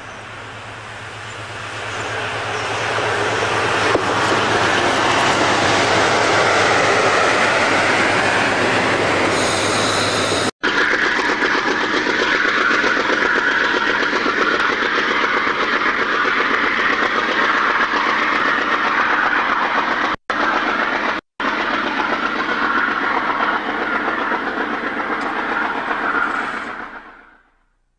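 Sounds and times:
train running gear rumble: 0:00.0 - 0:27.7
wheels clicking over rail joints: 0:10.8 - 0:27.2.

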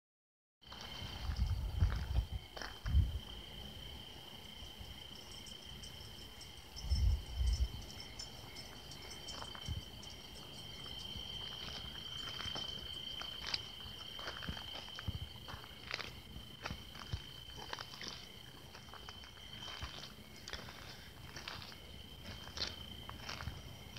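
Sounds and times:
crickets chirring: 0:00.6 - 0:23.9.

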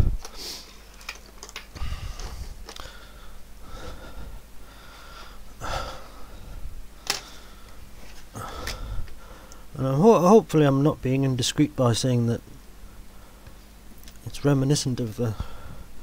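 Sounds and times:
man breathing and sniffing: 0:00.1 - 0:01.0, 0:01.7 - 0:09.7, 0:15.3 - 0:16.0.

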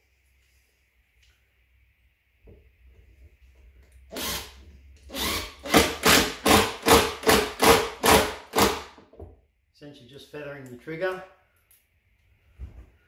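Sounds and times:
cordless drill driving screw: 0:04.1 - 0:08.9.

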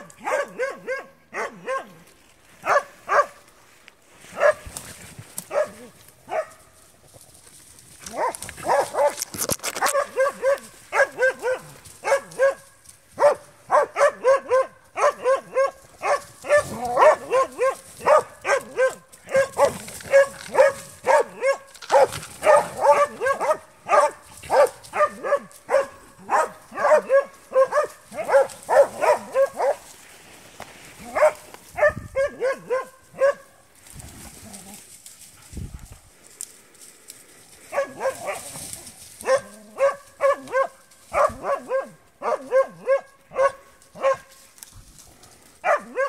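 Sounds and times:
dog barking rapidly: 0:00.0 - 0:02.0, 0:02.6 - 0:03.4, 0:04.4 - 0:04.7, 0:05.5 - 0:06.5, 0:08.1 - 0:09.2, 0:09.8 - 0:12.6, 0:13.2 - 0:29.8, 0:31.1 - 0:33.5, 0:37.7 - 0:38.4, 0:39.2 - 0:44.3, 0:45.6 - 0:46.0.

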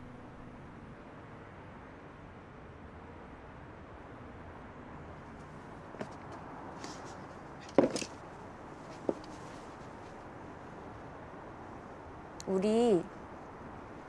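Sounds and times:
knocks and clicks of movement: 0:06.0 - 0:08.2, 0:08.9 - 0:09.6.

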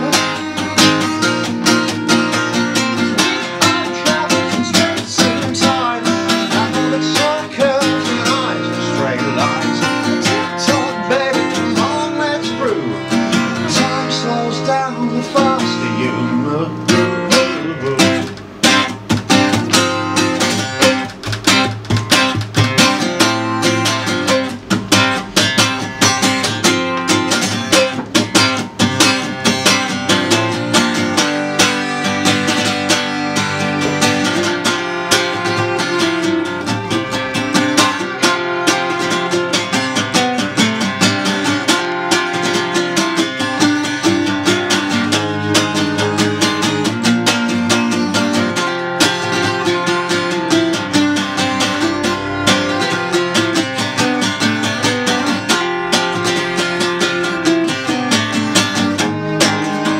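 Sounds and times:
acoustic guitar strumming: 0:00.0 - 0:59.9
violin bowing held notes: 0:30.4 - 0:40.3, 0:48.5 - 0:58.1.

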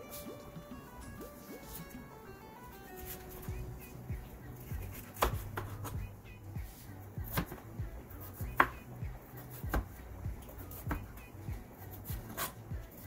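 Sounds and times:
background music: 0:00.0 - 0:13.0
knife chopping on plastic board: 0:04.9 - 0:06.0, 0:06.7 - 0:07.6, 0:08.3 - 0:08.8, 0:09.5 - 0:11.1, 0:12.1 - 0:12.6.

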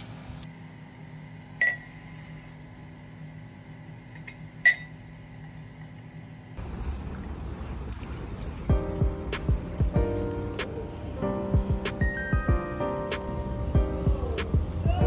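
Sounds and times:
drink pouring: 0:06.6 - 0:08.8.

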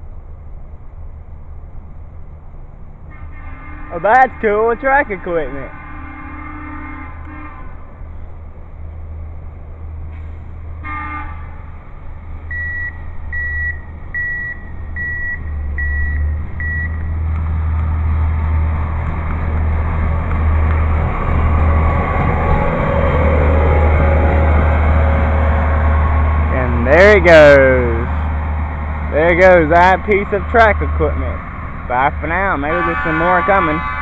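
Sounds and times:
rail machine engine: 0:00.0 - 0:34.0
horn toot: 0:03.1 - 0:07.9, 0:10.8 - 0:11.6, 0:32.3 - 0:34.0
warning beeps: 0:12.5 - 0:17.1.

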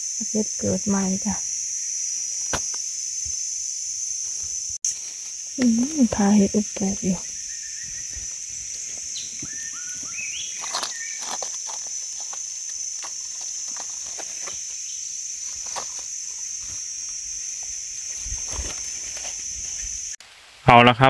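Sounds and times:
insects shrilling: 0:00.0 - 0:20.2
footsteps on forest litter: 0:04.3 - 0:19.9.

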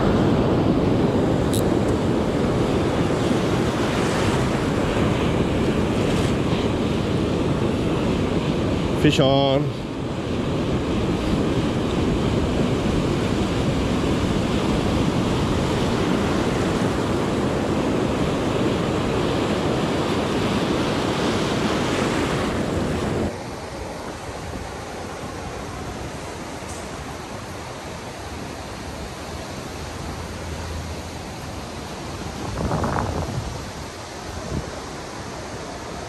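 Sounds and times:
wind on microphone: 0:00.0 - 0:09.0, 0:31.4 - 0:35.6
surf breaking in shallows: 0:00.0 - 0:36.0.

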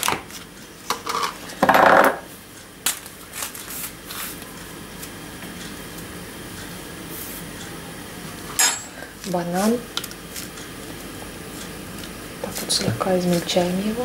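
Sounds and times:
dishes and utensils clinking: 0:08.6 - 0:09.0.

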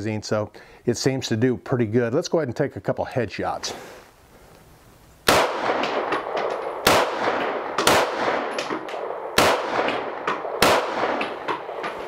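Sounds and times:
pistol shots with echo: 0:05.3 - 0:12.0.

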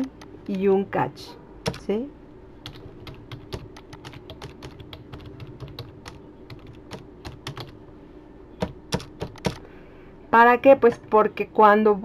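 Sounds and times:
keyboard typing clicks: 0:01.6 - 0:01.9, 0:02.7 - 0:07.8, 0:08.6 - 0:09.6.

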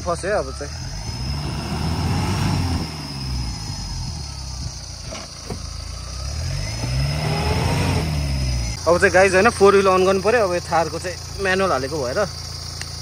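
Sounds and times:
engine revving: 0:00.0 - 0:13.0
sharp clicks: 0:12.7 - 0:13.0.

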